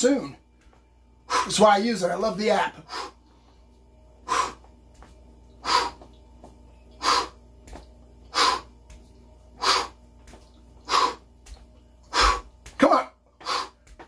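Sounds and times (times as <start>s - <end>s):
man exhaling forcefully: 13.4s - 13.8s.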